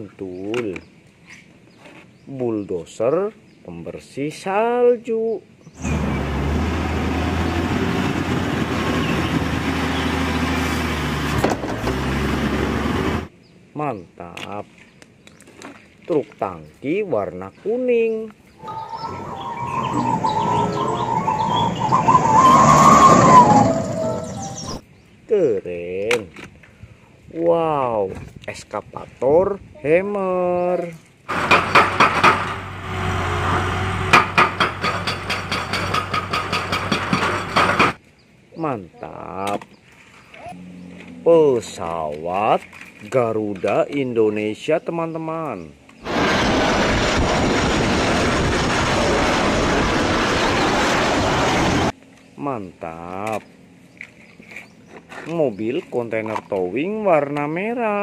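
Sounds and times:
diesel engine running: 5.8 - 13.3, 31.3 - 38.0, 46.0 - 51.9
hydraulic breaker hammering rock: 31.3 - 32.8, 34.0 - 38.0.

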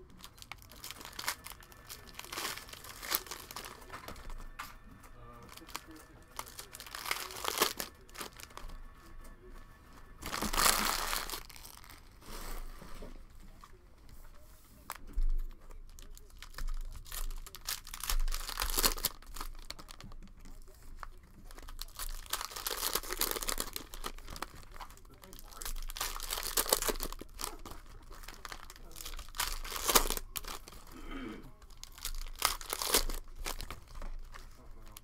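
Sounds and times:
plastic wrappers crinkling and tearing: 0.0 - 35.0.

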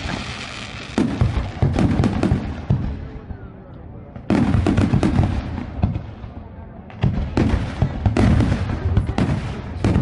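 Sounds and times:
crackling firework pops: 0.0 - 3.1.

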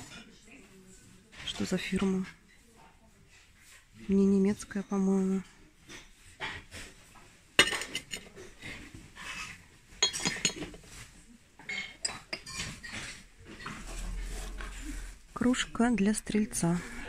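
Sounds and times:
porcelain dishes clinking: 7.6 - 13.9.

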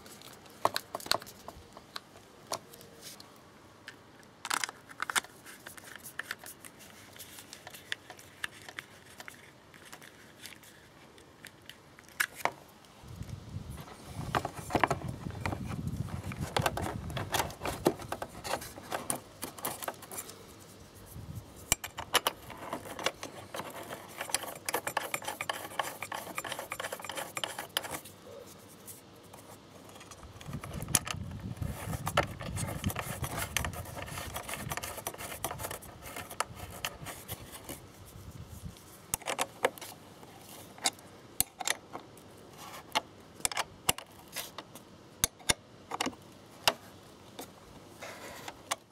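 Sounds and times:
rubbing against plastic: 13.7 - 40.8.

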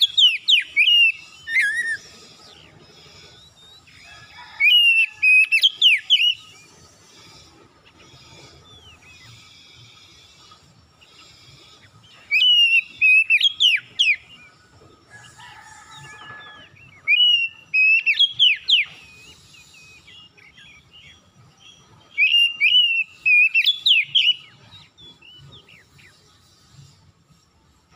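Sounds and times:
bird singing clear whistles: 0.0 - 6.7, 12.2 - 14.6, 15.3 - 26.1.

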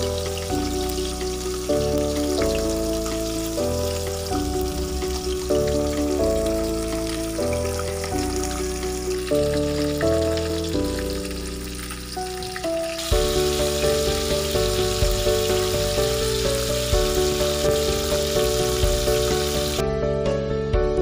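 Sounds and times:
fish sizzling in hot oil: 0.0 - 19.8
background music with steady beat: 0.0 - 21.0.

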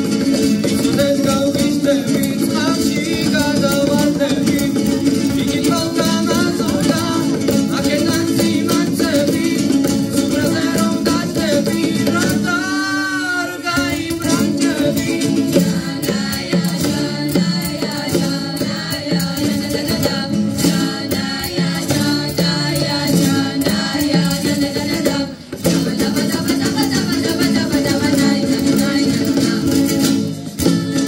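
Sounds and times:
acoustic guitars strummed: 0.0 - 31.0
hand percussion beat: 0.0 - 31.0
voices singing: 0.6 - 31.0.

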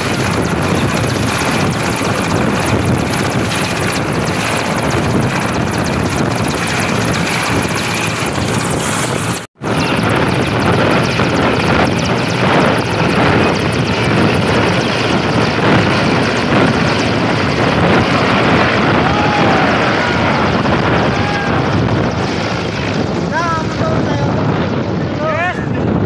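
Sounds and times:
helicopter engines and rotor: 0.0 - 26.0.

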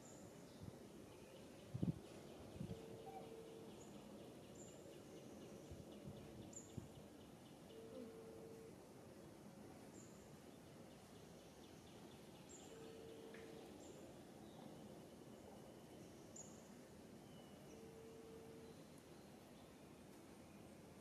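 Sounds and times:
low steady tone: 0.6 - 9.0, 12.5 - 20.9.

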